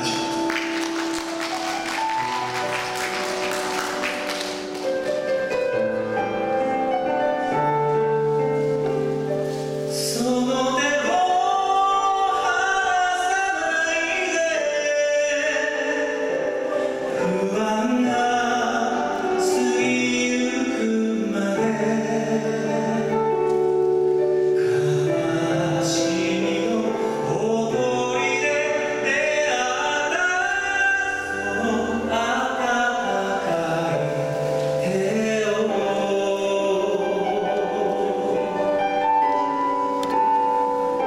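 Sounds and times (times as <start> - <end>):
man singing into microphone: 0.0 - 0.5, 9.9 - 39.3
karaoke backing track: 0.0 - 41.0.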